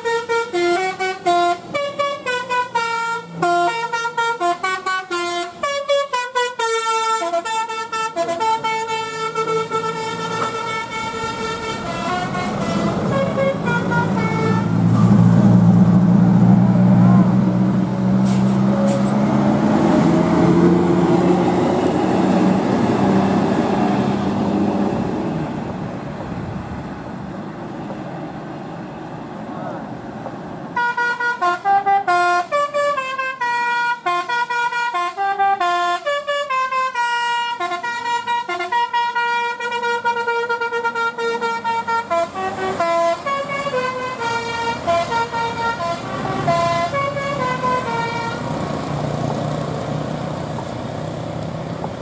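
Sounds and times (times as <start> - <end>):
bus horn playing a melody: 0.0 - 15.2, 30.8 - 48.6
bus diesel engine passing: 0.0 - 52.0.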